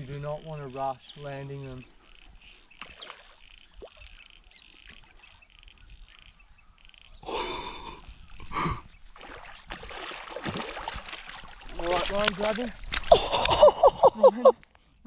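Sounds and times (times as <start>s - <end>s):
fish splashing and thrashing: 8.9s - 14.1s.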